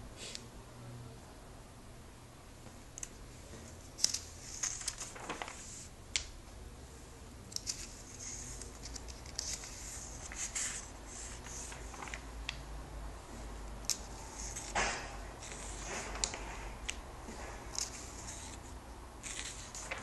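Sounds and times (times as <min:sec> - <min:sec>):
paper pages rustling: 0:03.0 - 0:05.9, 0:07.5 - 0:12.6, 0:13.9 - 0:20.0.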